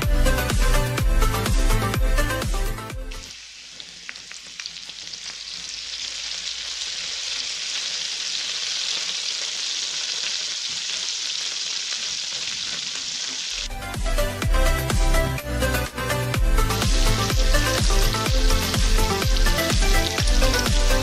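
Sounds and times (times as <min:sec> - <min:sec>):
butter sizzling in a frying pan: 0:03.2 - 0:13.7, 0:16.4 - 0:21.0.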